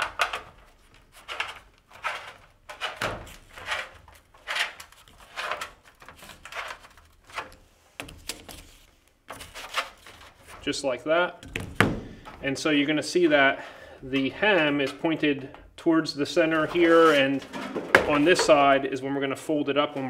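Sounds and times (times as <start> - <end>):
sheet metal scraping and popping: 0.0 - 12.9, 16.3 - 18.9.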